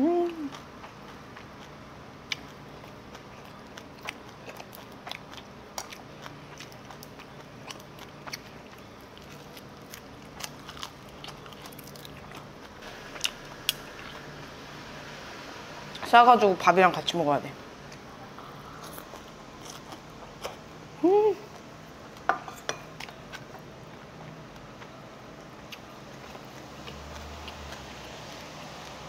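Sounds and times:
faint hum: 0.0s - 29.0s
person chewing: 0.4s - 14.3s, 17.9s - 20.7s.

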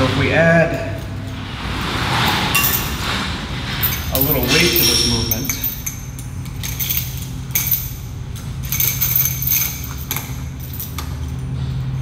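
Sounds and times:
steady low hum: 0.0s - 12.0s
metal chain jingling: 2.5s - 3.0s, 3.7s - 12.0s.

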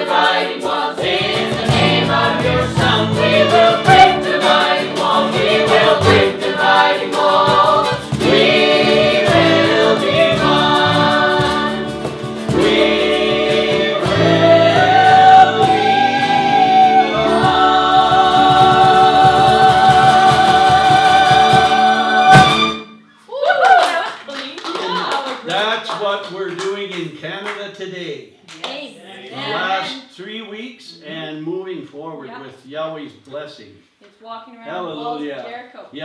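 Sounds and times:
cajon: 0.0s - 22.8s
mixed voices singing: 0.0s - 22.8s
acoustic guitar: 0.0s - 23.3s
violin: 1.1s - 23.0s.

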